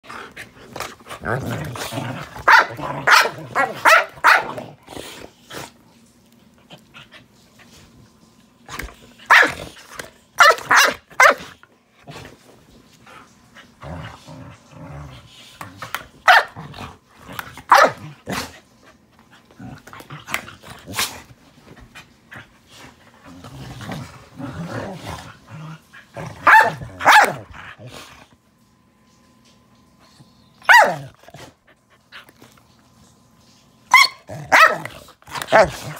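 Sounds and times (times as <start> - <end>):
dog growling: 0.1 - 3.8, 13.8 - 15.9, 23.2 - 27.0
dogs barking: 2.4 - 4.6, 9.3 - 9.7, 10.4 - 11.5, 16.2 - 16.6, 17.7 - 18.1, 26.4 - 27.5, 30.6 - 31.1, 33.9 - 34.9.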